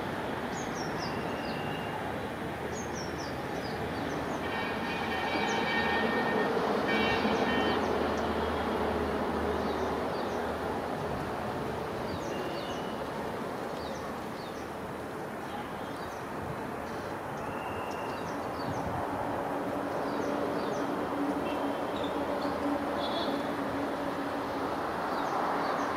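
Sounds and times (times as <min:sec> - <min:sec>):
locomotive horn blasts: 0:04.4 - 0:09.0.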